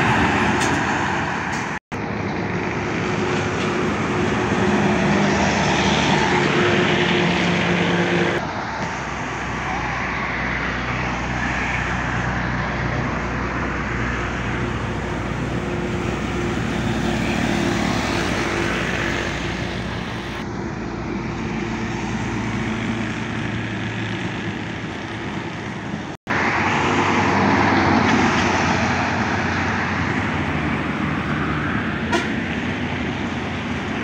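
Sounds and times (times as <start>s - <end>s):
truck engines droning: 0.0s - 34.0s
tyre and road noise: 0.0s - 34.0s.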